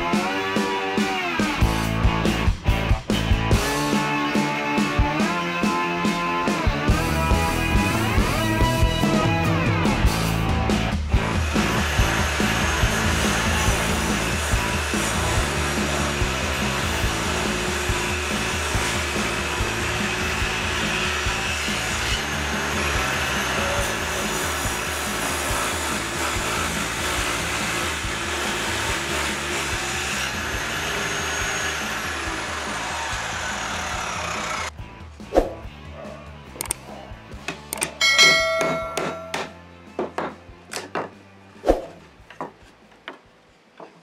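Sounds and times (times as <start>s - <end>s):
table saw whirring: 11.2s - 34.7s.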